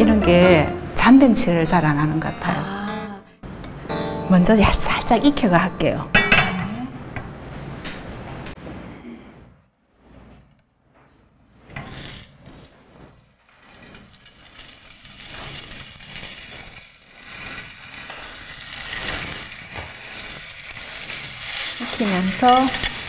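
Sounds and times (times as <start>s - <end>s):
peppers sizzling in hot oil: 13.4s - 23.0s.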